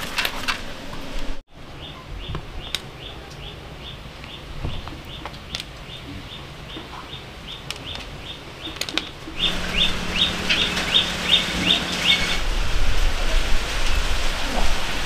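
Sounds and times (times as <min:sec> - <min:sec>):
bird chirping: 0:01.7 - 0:12.4
low hum: 0:09.4 - 0:13.3.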